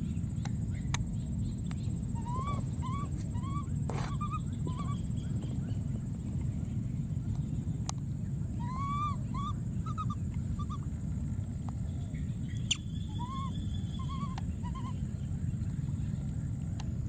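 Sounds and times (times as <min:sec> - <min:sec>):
steady low rumble: 0:00.0 - 0:17.0
short squeaky animal calls: 0:02.2 - 0:05.0.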